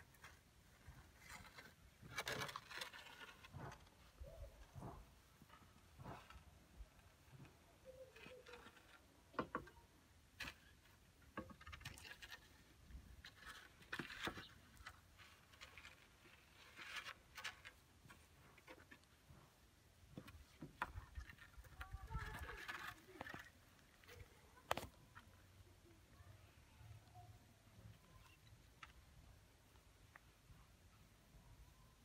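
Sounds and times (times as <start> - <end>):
rustling of dry leaves and stalks: 0.0 - 9.2, 10.4 - 25.6.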